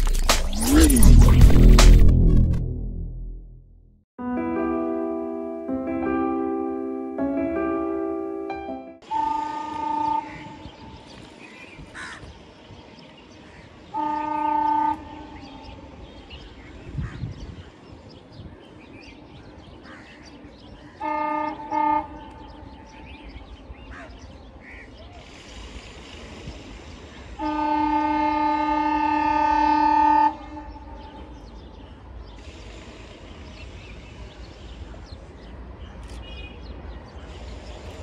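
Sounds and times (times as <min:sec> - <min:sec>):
diesel locomotive horn blasts: 0:09.0 - 0:11.0, 0:13.9 - 0:16.1, 0:21.0 - 0:23.4, 0:26.2 - 0:31.5.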